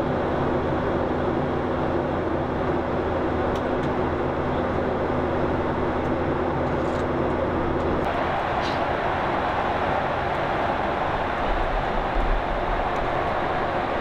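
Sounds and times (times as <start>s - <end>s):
aircraft engine noise: 0.0s - 14.0s
airflow rush: 8.1s - 14.0s.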